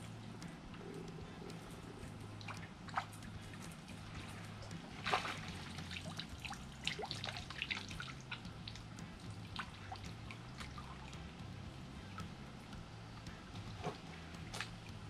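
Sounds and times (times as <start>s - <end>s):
fish splashing in water: 4.8s - 8.4s.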